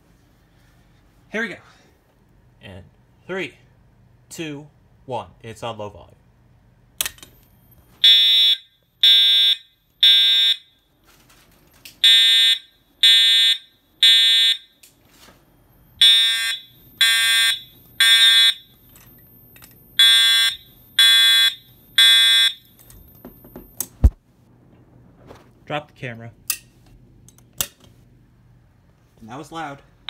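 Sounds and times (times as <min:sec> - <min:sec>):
fire alarm horn blasts: 0:08.0 - 0:10.9, 0:12.0 - 0:14.8, 0:16.0 - 0:18.8, 0:20.0 - 0:22.8.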